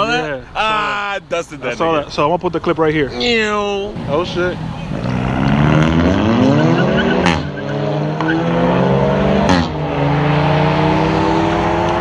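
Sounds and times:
car engine accelerating: 0:04.0 - 0:12.0.

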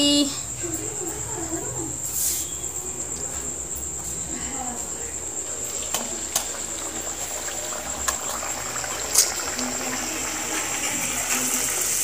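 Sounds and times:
hot oil sizzling: 0:05.4 - 0:12.0.

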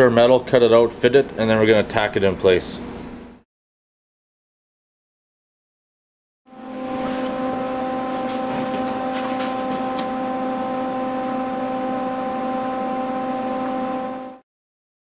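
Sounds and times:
welder electric buzz: 0:06.5 - 0:14.4.

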